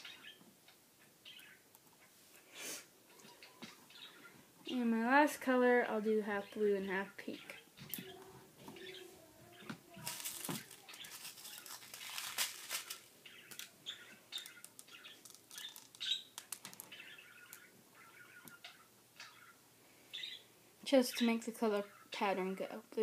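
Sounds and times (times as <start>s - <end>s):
small clicks and rustles: 9.6s - 17.7s
beads pattering on paper: 9.7s - 17.7s.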